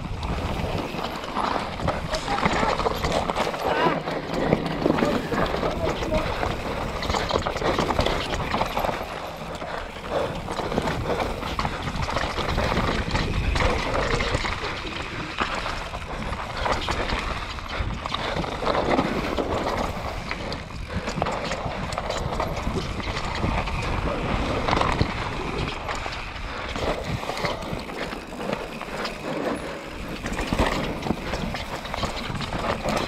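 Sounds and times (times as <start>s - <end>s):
bike tyres crunching over stones: 0.0s - 33.0s
wind rumble on microphone: 0.0s - 33.0s
bike clattering over rocks: 0.1s - 33.0s.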